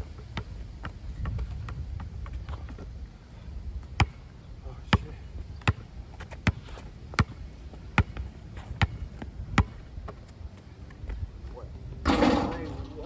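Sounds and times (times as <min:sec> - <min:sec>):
basketball bouncing on asphalt: 0:00.2 - 0:02.9, 0:03.8 - 0:04.3, 0:04.9 - 0:10.7.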